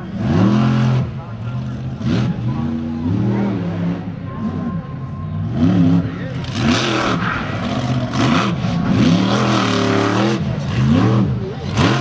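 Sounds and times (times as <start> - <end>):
monster truck engine revving: 0.0 - 12.0.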